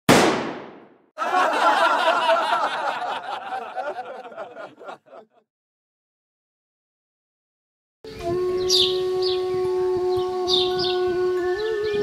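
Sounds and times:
canned crowd laughter: 1.2 - 5.4.

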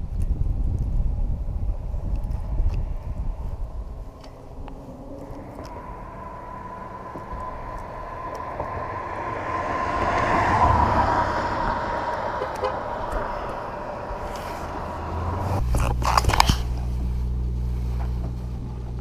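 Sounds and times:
vehicle passing by: 2.3 - 15.7.

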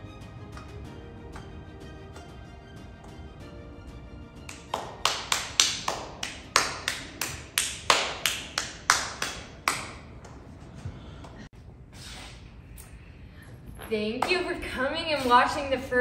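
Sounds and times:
person clapping: 4.5 - 10.5.

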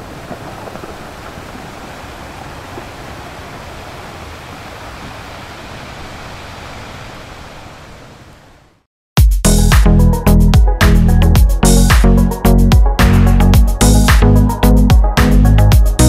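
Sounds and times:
ocean waves breaking on beach: 0.0 - 8.8.

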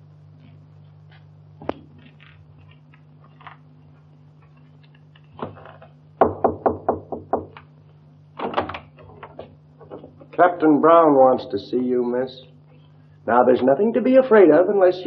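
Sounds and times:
steady low hum: 0.0 - 15.0
knocking on a door: 6.2 - 7.6.

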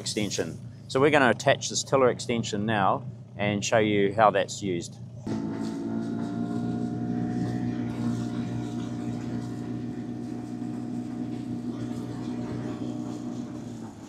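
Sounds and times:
outboard motor running: 5.0 - 14.0.

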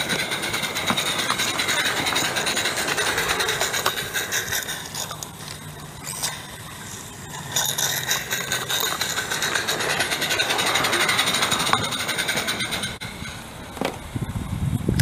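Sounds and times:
steam locomotive exhaust beat: 0.0 - 15.0.

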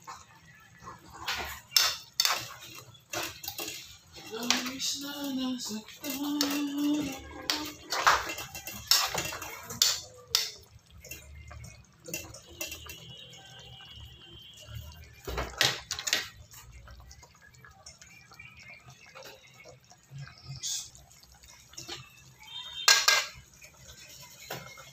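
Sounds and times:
spoon clinking against pan: 1.3 - 13.1, 21.7 - 24.9.

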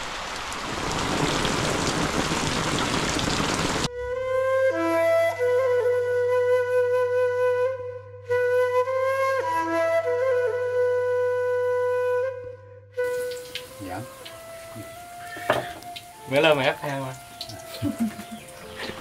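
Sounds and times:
solo flute melody: 3.9 - 19.0.

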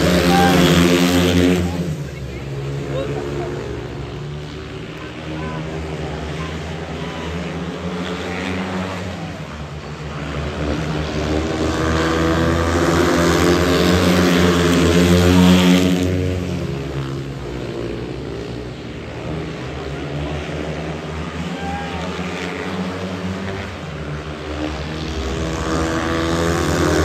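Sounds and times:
motorbike engines racing past: 0.0 - 27.0.

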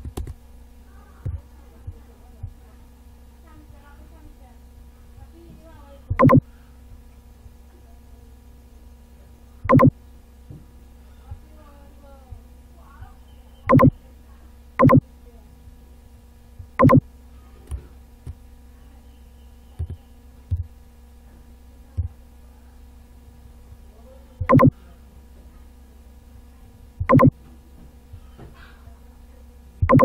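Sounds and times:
steady electrical hum: 0.0 - 30.0.

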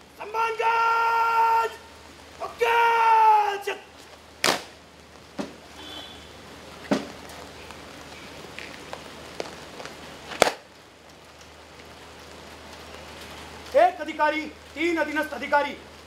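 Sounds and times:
rain hissing: 0.0 - 16.0.

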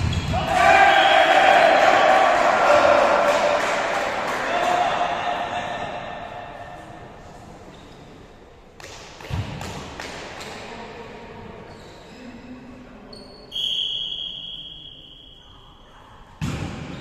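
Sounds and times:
referee whistle blast: 13.5 - 15.4.

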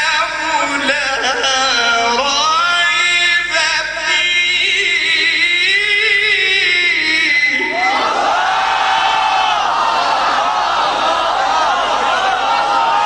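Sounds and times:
man chanting: 0.0 - 7.9.

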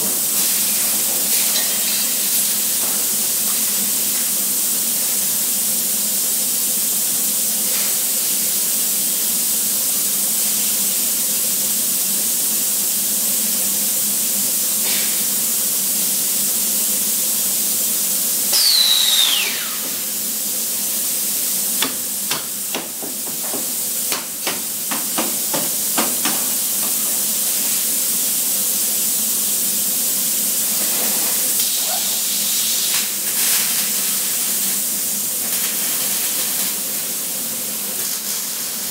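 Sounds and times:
factory machinery hiss: 0.0 - 38.9
falling whistle: 18.5 - 20.0.

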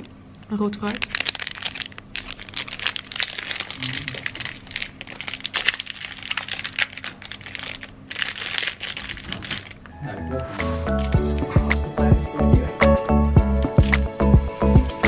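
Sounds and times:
plastic wrapper crinkling: 0.6 - 10.0.

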